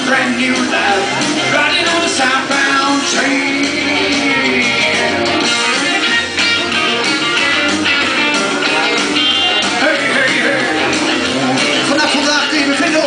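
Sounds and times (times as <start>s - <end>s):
country song with strummed guitar: 0.0s - 13.0s.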